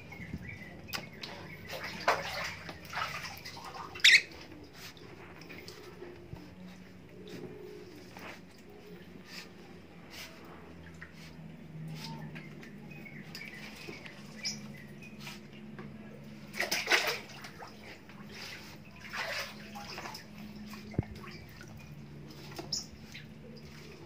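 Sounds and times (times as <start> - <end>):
animal splashing in water: 0.9 - 6.2, 16.5 - 24.0.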